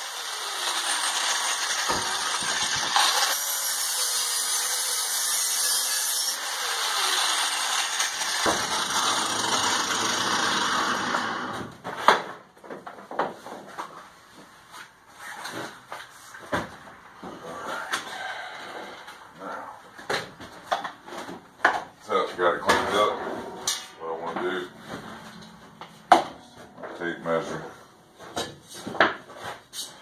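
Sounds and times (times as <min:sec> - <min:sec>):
angle grinder grinding metal: 0:00.0 - 0:11.6.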